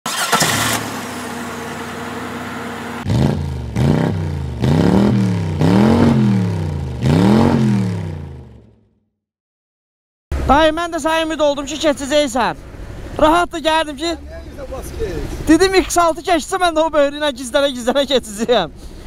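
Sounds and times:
engine idling: 0:00.1 - 0:03.1
engine revving: 0:00.1 - 0:08.8.

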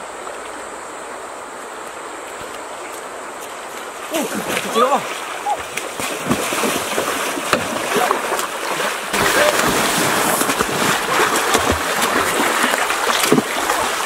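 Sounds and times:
water splashing and churning: 0:00.0 - 0:14.0
stick striking water: 0:05.6 - 0:14.0.

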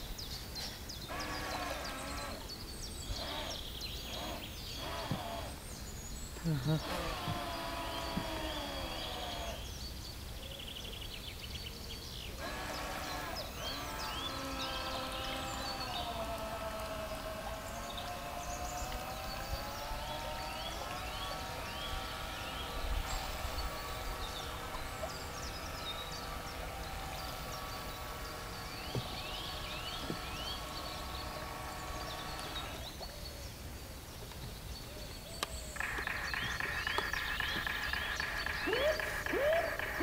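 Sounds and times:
bird chirps: 0:00.0 - 0:16.2, 0:34.8 - 0:40.0
model boat whining tone: 0:01.1 - 0:09.9, 0:12.4 - 0:33.1, 0:35.8 - 0:40.0
higher steady tone: 0:35.8 - 0:40.0.

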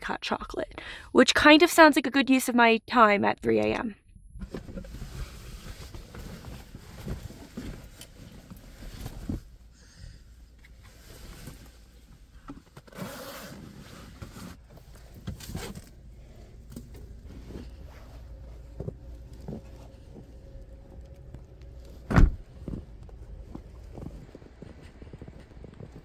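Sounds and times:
coat fabric rustling: 0:17.1 - 0:26.0
loud thump: 0:22.0 - 0:22.8
footsteps crunching in snow: 0:22.6 - 0:26.0.

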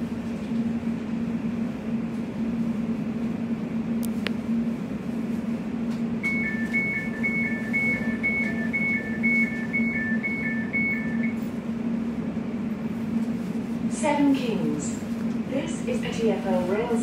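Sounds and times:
train hum: 0:00.0 - 0:17.0
high-low electronic beeps: 0:06.2 - 0:11.4.

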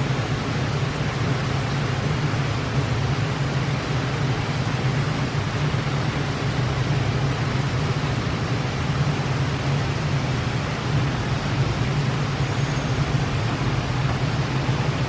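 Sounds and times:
fountain water rushing: 0:00.0 - 0:15.0
low hum: 0:09.5 - 0:15.0.

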